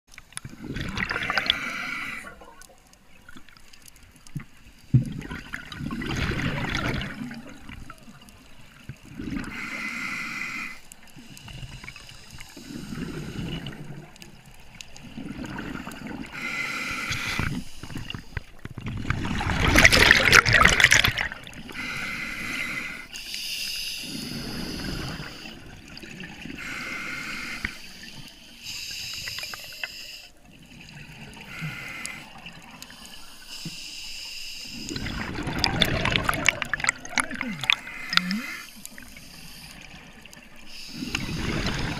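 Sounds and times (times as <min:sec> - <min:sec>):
gurgling exhaled bubbles: 0:00.3 - 0:03.5, 0:04.2 - 0:09.8, 0:11.5 - 0:22.1, 0:34.8 - 0:41.9
regulator hissing inhale: 0:01.4 - 0:02.4, 0:09.4 - 0:13.9, 0:16.3 - 0:18.5, 0:21.7 - 0:25.7, 0:26.6 - 0:30.4, 0:31.4 - 0:35.1, 0:37.7 - 0:41.8.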